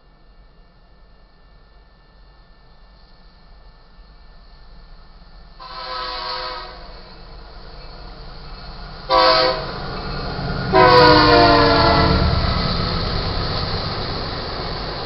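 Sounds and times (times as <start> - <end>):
diesel locomotives rumbling: 0.0 - 15.0
locomotive air horn blasts: 5.6 - 7.0, 9.1 - 9.8, 10.7 - 12.3.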